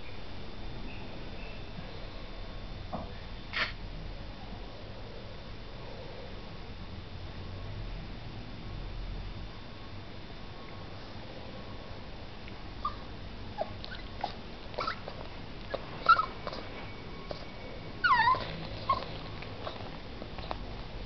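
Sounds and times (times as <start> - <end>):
puppy whimpering: 12.8 - 20.6.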